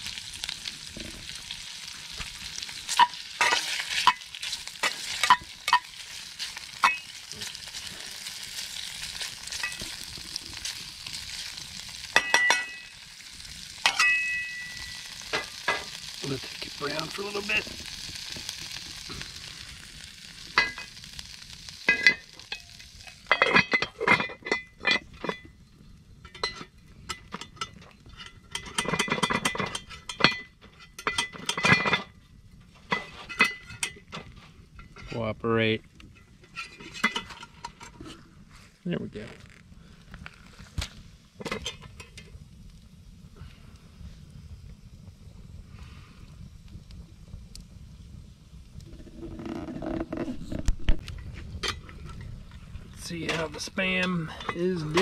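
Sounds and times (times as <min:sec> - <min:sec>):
meat sizzling in oil: 0:00.0 - 0:27.4
utensil scraping pot: 0:00.1 - 0:25.4, 0:36.1 - 0:38.6, 0:48.8 - 0:55.0.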